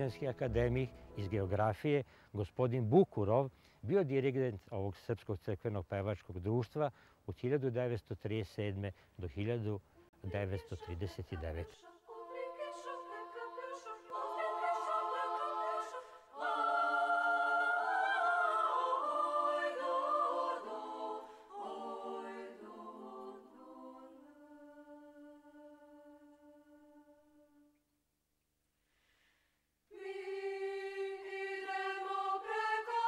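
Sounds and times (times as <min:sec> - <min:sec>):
women's choir singing a cappella: 0:10.2 - 0:27.6, 0:29.9 - 0:33.0.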